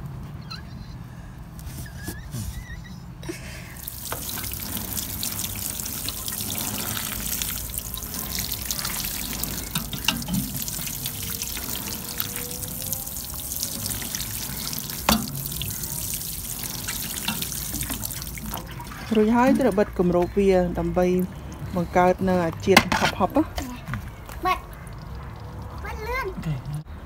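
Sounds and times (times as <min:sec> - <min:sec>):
water sprinkling onto soil: 0:03.8 - 0:19.8.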